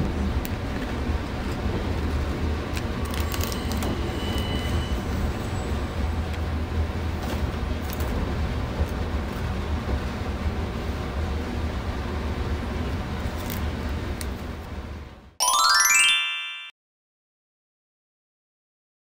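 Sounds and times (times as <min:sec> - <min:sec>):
steady low train hum: 0:00.0 - 0:15.4.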